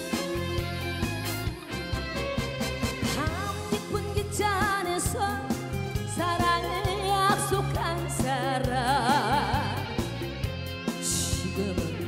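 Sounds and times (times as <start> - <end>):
band with bass and drums: 0.0 - 12.0
woman singing with vibrato: 3.1 - 10.0.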